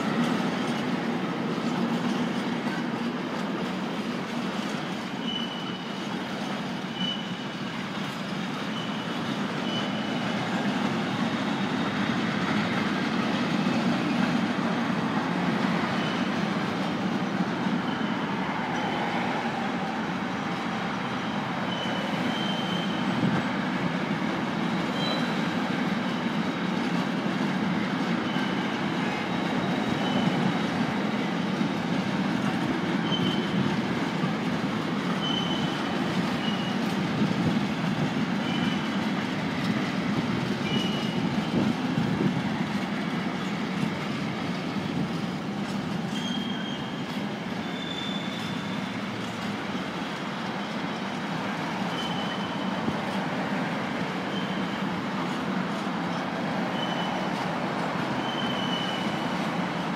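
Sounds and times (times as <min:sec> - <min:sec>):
train wheels rumbling on rails: 0:00.0 - 0:59.9
high wheel squeals: 0:04.8 - 0:12.0, 0:15.8 - 0:16.4, 0:17.6 - 0:23.4, 0:24.7 - 0:26.8, 0:28.0 - 0:30.8, 0:32.8 - 0:34.0, 0:35.0 - 0:37.0, 0:38.2 - 0:39.7, 0:40.6 - 0:42.2, 0:45.7 - 0:53.0, 0:54.0 - 0:55.4, 0:56.0 - 0:59.9.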